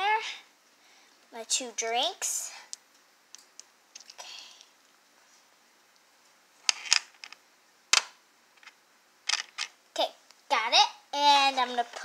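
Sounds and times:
plastic toy pieces clicking: 9.3 - 9.7.

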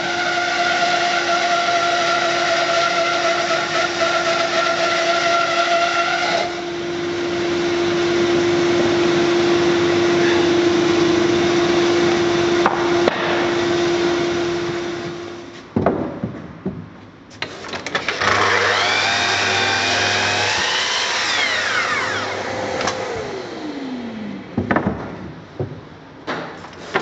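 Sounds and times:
blade sawing log: 0.0 - 6.7, 18.2 - 23.5
bandsaw humming: 0.0 - 15.5, 18.0 - 24.6.

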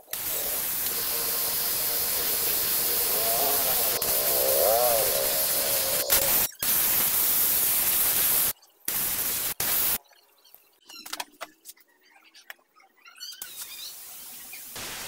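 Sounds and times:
spray gun hissing: 0.0 - 10.0.

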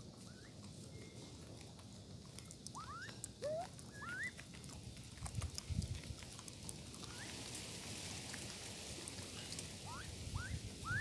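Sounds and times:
rising whistled bird calls: 0.2 - 0.6, 2.8 - 4.4, 9.9 - 11.0.

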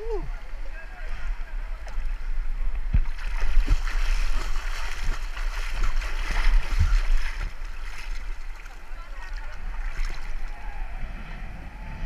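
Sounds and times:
river water splashing: 0.0 - 11.0
low rumble: 9.8 - 12.0.

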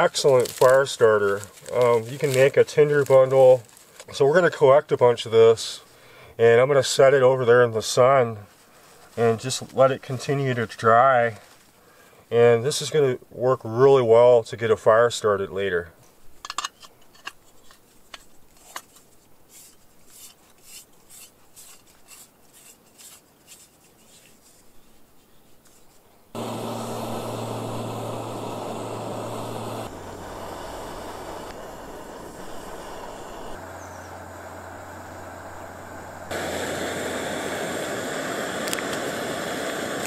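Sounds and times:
steady rushing noise with hum: 26.4 - 40.0.

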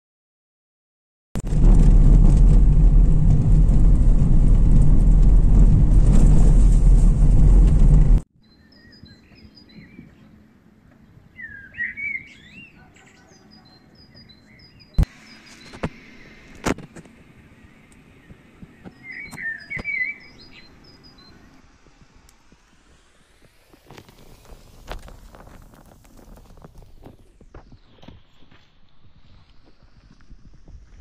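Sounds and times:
car driving on gravel road: 1.4 - 8.2, 18.3 - 31.0
birds chirping and warbling: 8.4 - 21.7.

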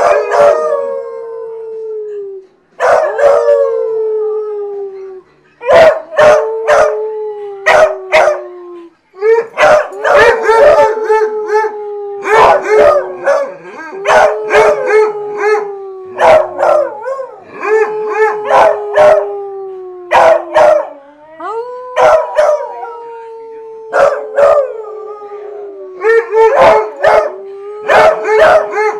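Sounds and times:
dogs howling: 0.0 - 1.9, 2.8 - 28.9.

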